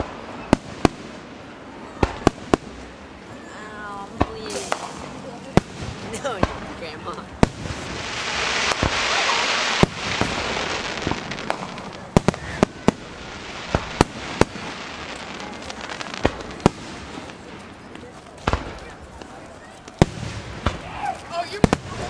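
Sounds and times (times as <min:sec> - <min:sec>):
firework bangs: 0:00.0 - 0:03.2, 0:04.0 - 0:22.0
firework crackling hiss: 0:00.0 - 0:22.0.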